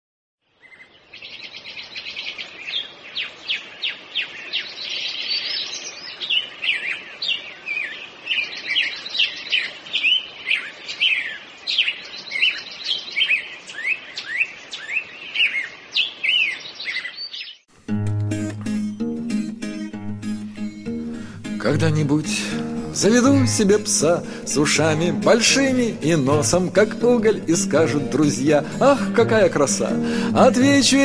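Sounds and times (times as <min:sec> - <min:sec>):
birds singing: 0:00.5 - 0:17.7.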